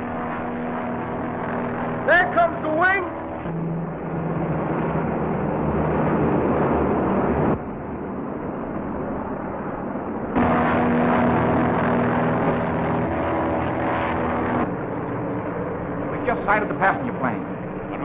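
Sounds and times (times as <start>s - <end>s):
propeller airplane engines droning: 0.0s - 18.0s.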